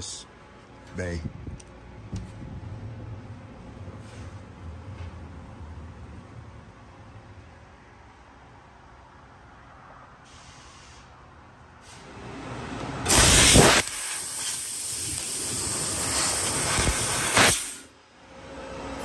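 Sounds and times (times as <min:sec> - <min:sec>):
laser cutter gas hiss: 0:13.1 - 0:17.9.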